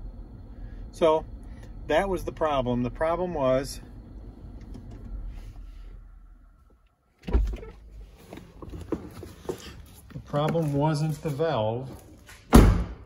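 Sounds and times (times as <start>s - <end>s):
air suspension humming: 0.0s - 10.2s.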